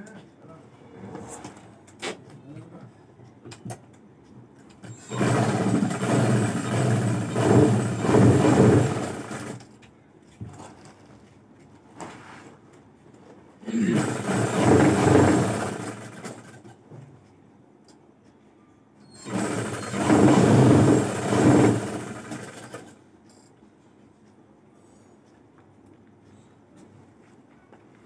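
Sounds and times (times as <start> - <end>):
sewing machine stitching: 4.8 - 9.7, 13.7 - 16.8, 19.1 - 23.0.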